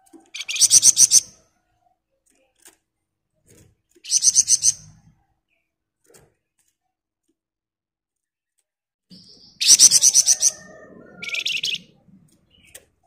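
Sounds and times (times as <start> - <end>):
bird trilling: 0.3 - 1.4, 4.1 - 4.9, 9.2 - 12.8.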